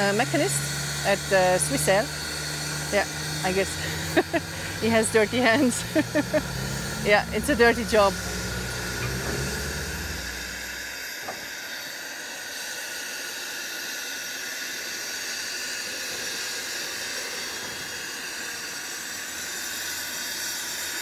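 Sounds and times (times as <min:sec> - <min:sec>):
steam locomotive hissing: 0:00.0 - 0:21.0
low rumble: 0:02.9 - 0:11.0.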